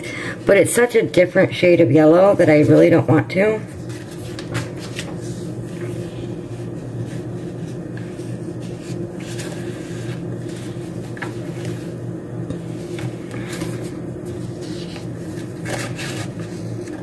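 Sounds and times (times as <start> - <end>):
low machine hum: 0.0 - 17.0
paper rustling: 3.6 - 12.0, 12.8 - 17.0.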